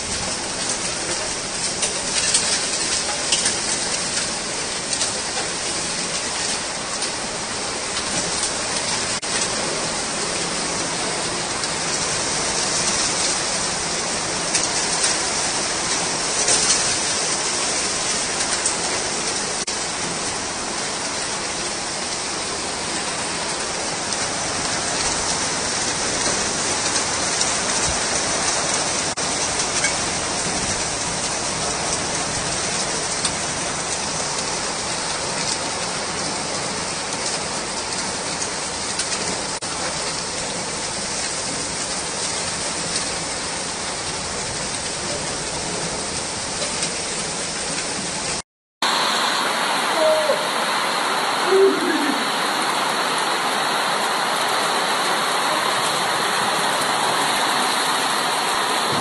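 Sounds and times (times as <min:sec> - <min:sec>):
heavy rain on wet street: 0:00.0 - 0:59.0.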